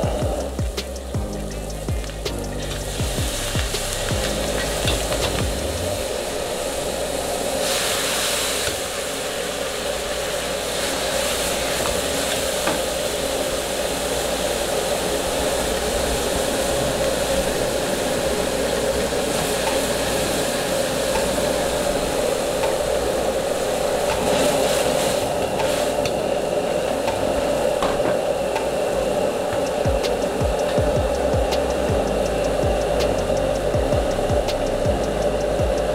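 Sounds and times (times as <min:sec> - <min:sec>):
gas burner rushing: 0:00.0 - 0:35.9
sauce bubbling and sizzling: 0:00.4 - 0:06.9.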